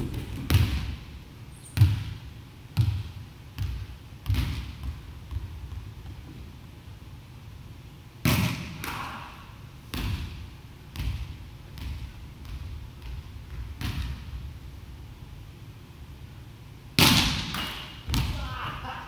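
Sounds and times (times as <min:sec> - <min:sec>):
volleyball struck hard: 0:17.0 - 0:18.3.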